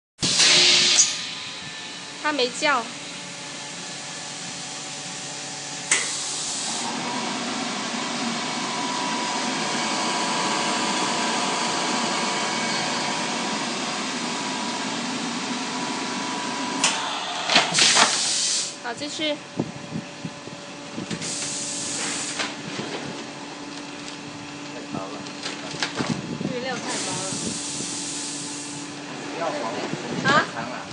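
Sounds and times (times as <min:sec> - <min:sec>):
air hiss bursts: 0:00.2 - 0:02.1, 0:05.9 - 0:06.8, 0:16.8 - 0:18.8, 0:21.2 - 0:22.5, 0:26.8 - 0:29.0
machine drone with faint whine: 0:00.3 - 0:30.9.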